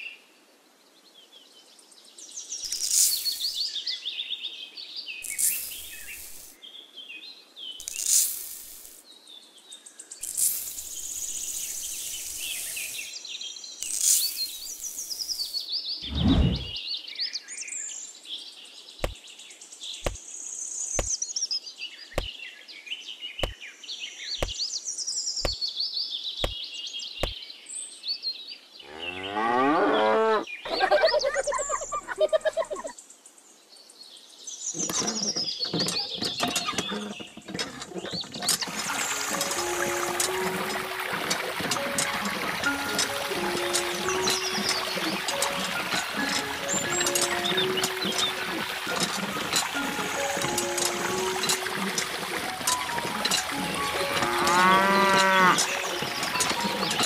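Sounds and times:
sand pouring from metal cup: 2.7 - 3.6, 5.2 - 6.6, 7.8 - 9.0, 10.2 - 13.1, 13.8 - 15.5
birds chirping: 13.8 - 16.8, 28.8 - 33.2, 34.6 - 57.0.

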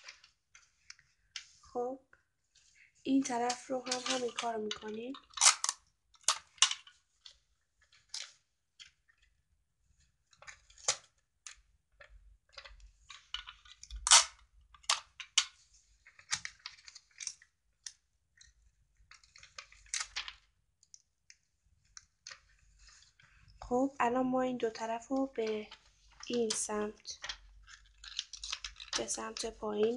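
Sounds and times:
paper and tape crackling: 2.8 - 9.3, 10.3 - 21.0, 24.8 - 29.9.

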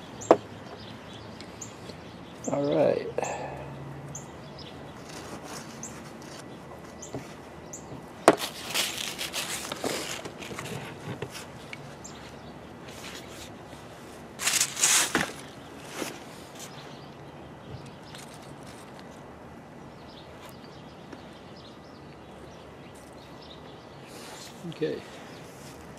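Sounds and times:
paper towel crinkling: 8.4 - 11.5.

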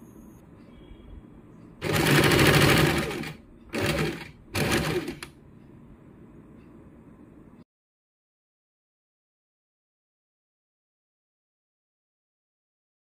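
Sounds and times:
sewing machine rattling: 1.8 - 5.3.

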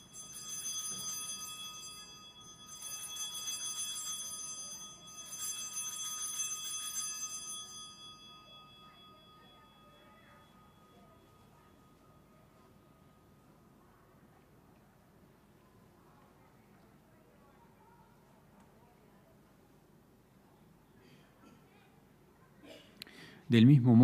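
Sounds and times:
altar bells ringing: 0.0 - 13.5.

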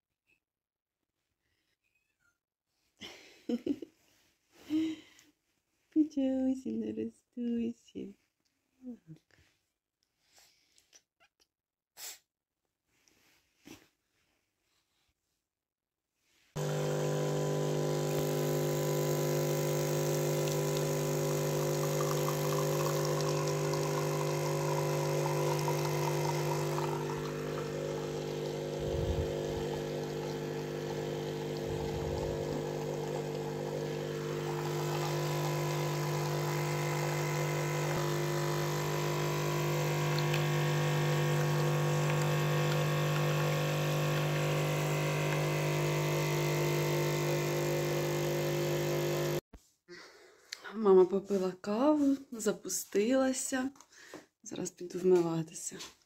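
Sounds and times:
electric appliance humming: 16.6 - 49.4.

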